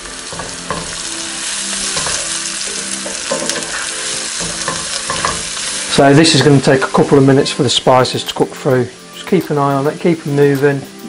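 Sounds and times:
spatula scraping and knocking pan: 0:00.0 - 0:06.6
onions sizzling in a frying pan: 0:00.0 - 0:11.0.

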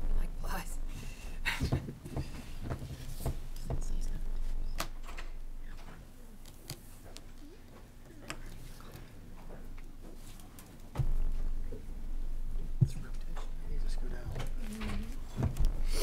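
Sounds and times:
knocks and rustles: 0:01.6 - 0:06.0, 0:08.2 - 0:11.9.

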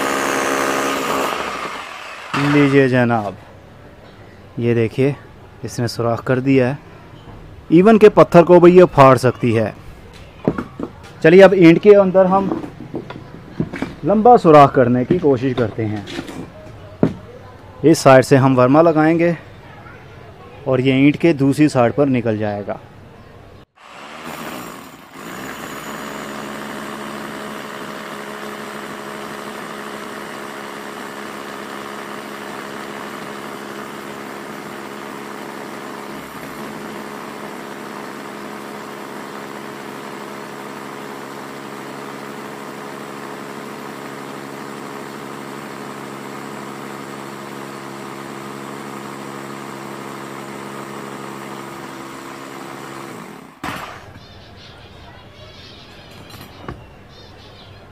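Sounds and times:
hammer drill boring through brick: 0:00.0 - 0:03.0, 0:23.8 - 0:54.0.

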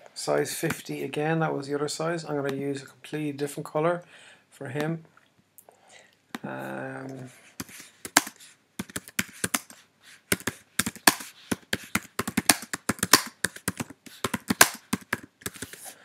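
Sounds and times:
keyboard typing: 0:07.6 - 0:15.8.

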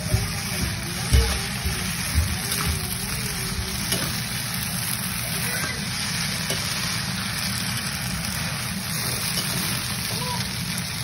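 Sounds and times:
food sizzling in a frying pan: 0:00.0 - 0:11.0
spatula scraping and tapping pan: 0:00.1 - 0:04.5, 0:05.4 - 0:07.0.

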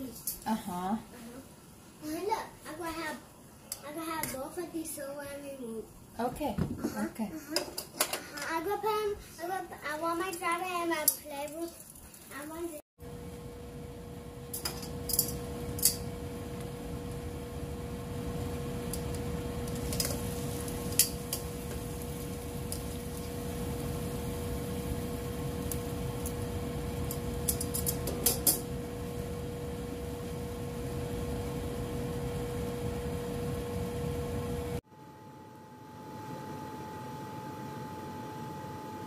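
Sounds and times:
constant hum: 0:00.0 - 0:39.0
pot boiling and bubbling: 0:09.9 - 0:34.8.

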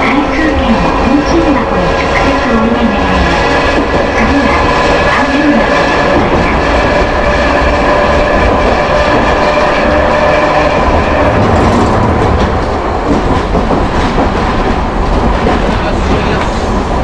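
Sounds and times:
tram motor whine: 0:00.0 - 0:15.3.

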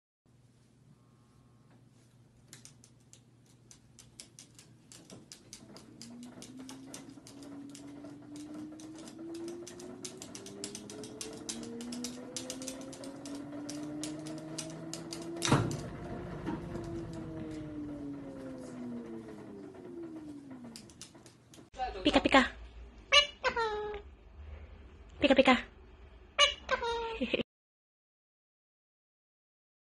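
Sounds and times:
washing machine motor hum: 0:00.9 - 0:23.0
parrot claws tapping on glass: 0:02.5 - 0:06.1.

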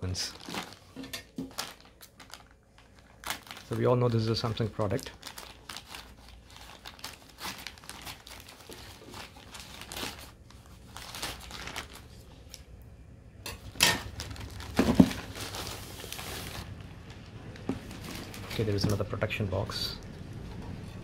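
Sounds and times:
plastic crinkling: 0:00.0 - 0:12.8, 0:13.7 - 0:20.4
scissors cutting plastic bag: 0:04.9 - 0:10.4
package thud: 0:13.8 - 0:15.5.

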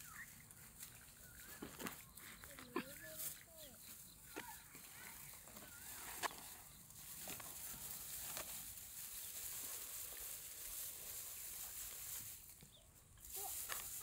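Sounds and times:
rustling in grass: 0:00.0 - 0:14.0
steady hiss: 0:06.8 - 0:14.0.

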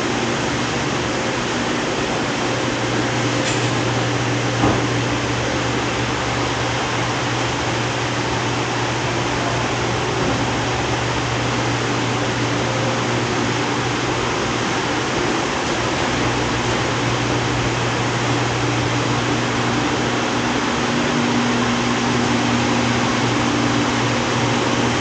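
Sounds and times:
ventilation hum and hiss: 0:00.0 - 0:25.0
brief knock: 0:04.6 - 0:04.9.

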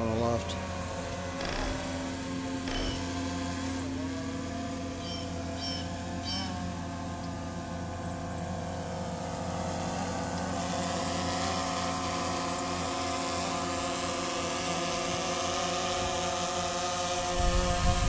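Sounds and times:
drone propellers humming: 0:00.0 - 0:18.0.

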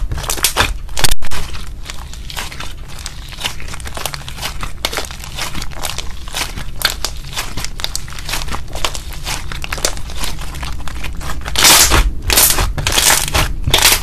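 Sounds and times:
slime squishes: 0:00.0 - 0:14.0
slime crackling pops: 0:11.5 - 0:14.0.

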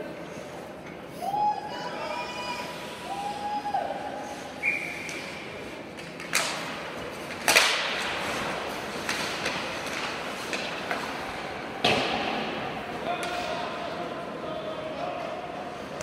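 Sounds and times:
hockey stick hitting puck: 0:06.0 - 0:13.7.

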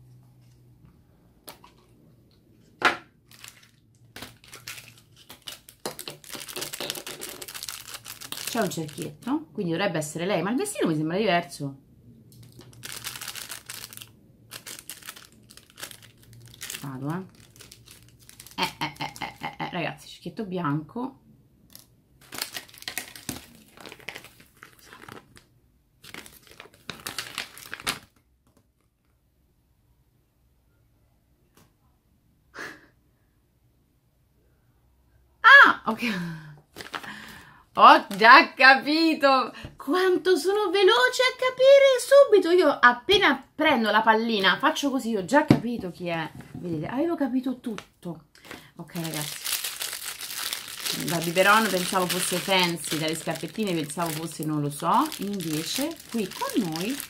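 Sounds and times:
plastic wrapper crinkling: 0:03.2 - 0:09.3, 0:12.3 - 0:19.5, 0:21.7 - 0:29.1, 0:36.7 - 0:37.3, 0:48.4 - 0:57.0
plastic ball snapping open: 0:05.2 - 0:07.6.

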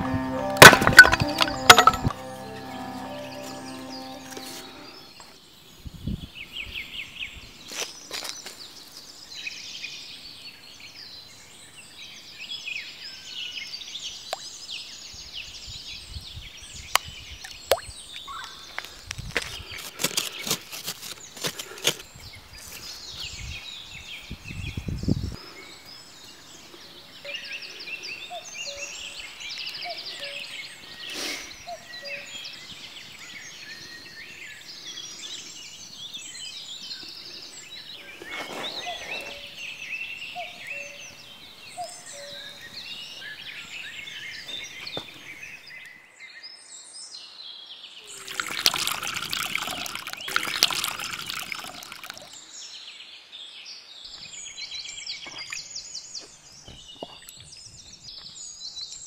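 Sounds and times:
small birds chirping: 0:04.4 - 0:59.0
stick digging into soil: 0:19.4 - 0:22.1.

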